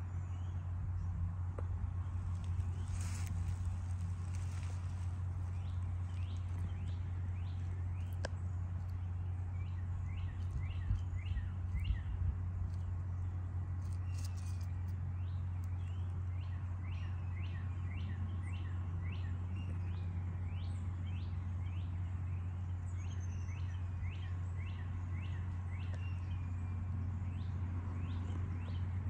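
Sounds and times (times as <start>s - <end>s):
steady low hum: 0.0s - 29.0s
bird chirping: 2.1s - 29.0s.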